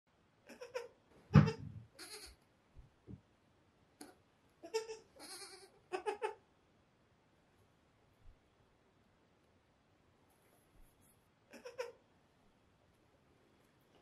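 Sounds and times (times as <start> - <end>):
goat kids bleating: 0.5 - 2.4, 4.0 - 6.4, 11.5 - 12.0.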